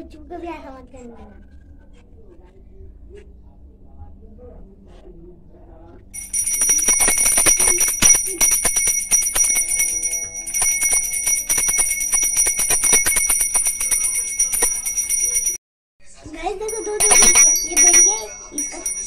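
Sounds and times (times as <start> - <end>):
hand bells rung rapidly: 6.2 - 15.6, 16.6 - 19.0.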